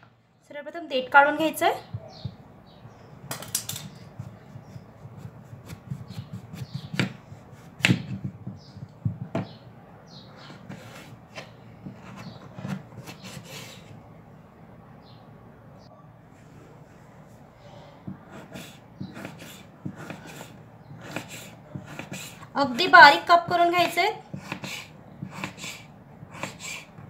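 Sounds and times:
knife rasping through fruit: 4.1 - 8.8, 10.4 - 14.0, 18.0 - 22.5, 23.6 - 27.0.

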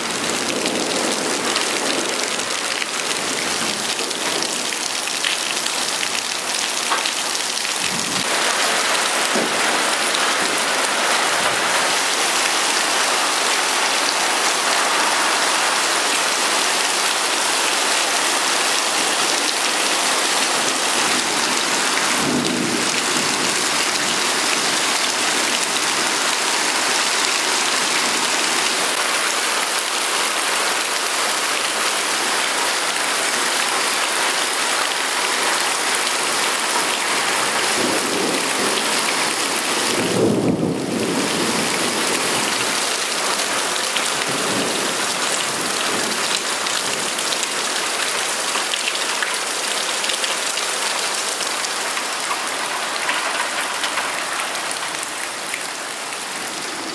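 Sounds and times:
heavy rain on paving: 0.0 - 56.9
thunder rumbling: 7.8 - 12.1.

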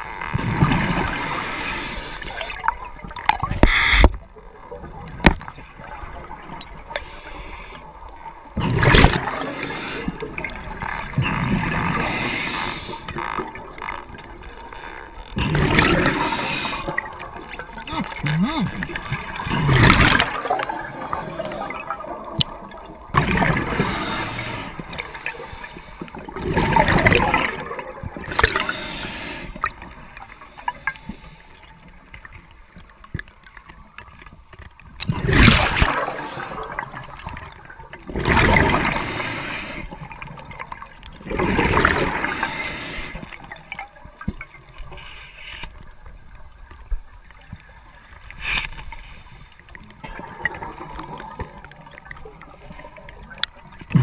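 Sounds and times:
gurgling exhaled bubbles: 8.5 - 31.0, 35.0 - 44.0, 50.0 - 54.0.

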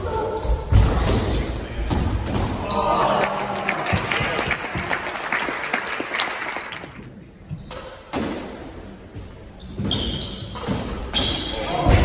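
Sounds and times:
spectators clapping: 2.8 - 7.2
shoes squeaking on court floor: 8.6 - 11.6.

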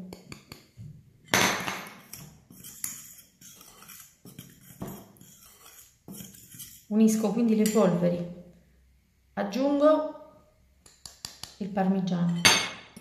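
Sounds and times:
fork scraping glass bowl: 2.0 - 7.9.

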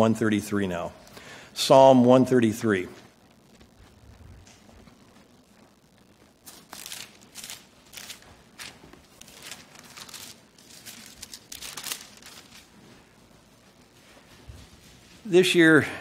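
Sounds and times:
thin pages being leafed through: 6.4 - 12.9.

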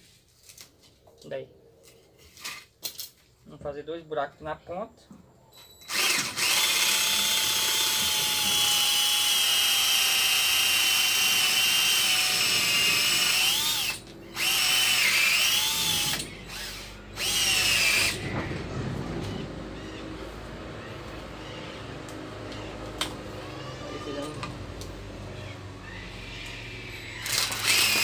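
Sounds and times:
cordless drill whining: 5.8 - 18.3, 25.9 - 28.0.

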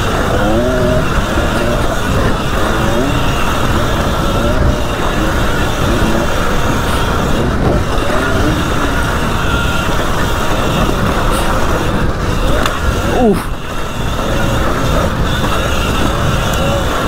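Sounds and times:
electric motor whine: 0.0 - 17.0
wind rumble on microphone: 0.0 - 17.0.

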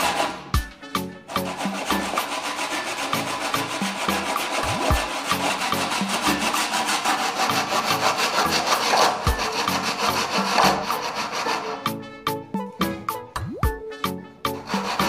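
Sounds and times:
handsaw cutting wood: 0.0 - 0.6, 1.3 - 12.0, 14.5 - 15.0.

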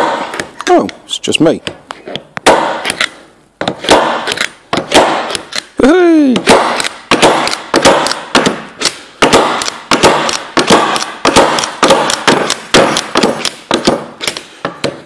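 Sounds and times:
centre punch snapping onto wood: 6.4 - 15.0.

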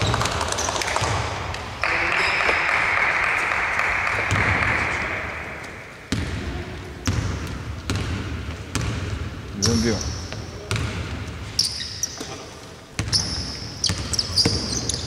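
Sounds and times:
basketball dribbling thuds: 6.1 - 11.5, 12.9 - 15.0.

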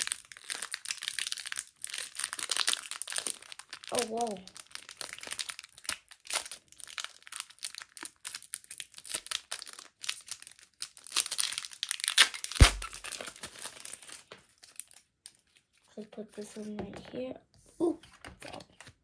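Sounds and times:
foil wrapper tearing and crinkling: 0.0 - 15.7
sharp thump: 12.6 - 13.0.

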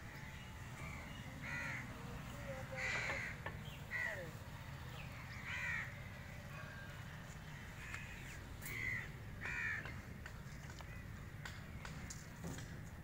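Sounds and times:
crows cawing: 0.0 - 4.4, 5.2 - 6.8, 7.4 - 11.2.

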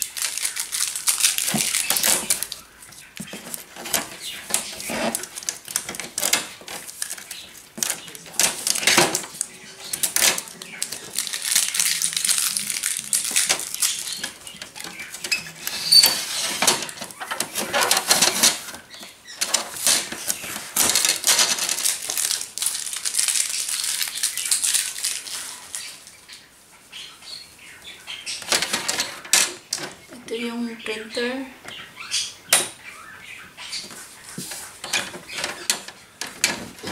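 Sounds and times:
plastic packaging crinkling: 0.0 - 26.4, 33.8 - 36.9
plastic trays scraping and clicking: 1.5 - 11.2, 13.3 - 22.0, 28.4 - 30.1, 33.9 - 36.9.

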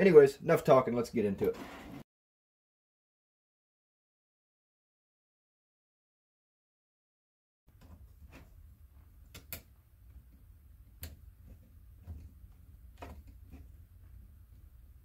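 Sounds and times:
low steady hum: 7.7 - 15.0.

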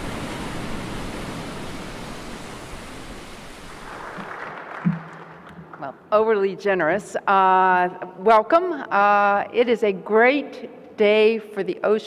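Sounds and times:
steady rushing noise: 0.0 - 5.0.

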